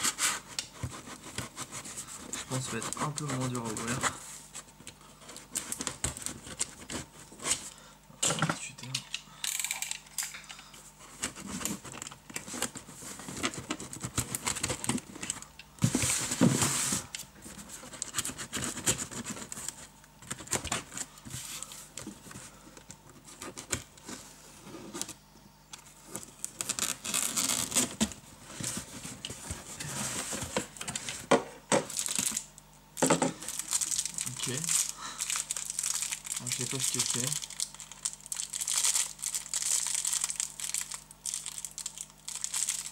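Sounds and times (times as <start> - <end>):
packing tape rasping: 0.0 - 4.2, 11.1 - 17.2, 26.2 - 28.8, 31.9 - 32.5, 33.4 - 42.9.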